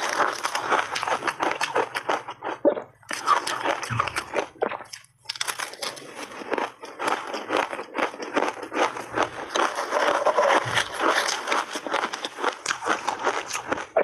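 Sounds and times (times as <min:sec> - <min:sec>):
crunching and chewing ice: 0:00.0 - 0:14.0
spoon scraping plastic bowl: 0:09.7 - 0:11.1.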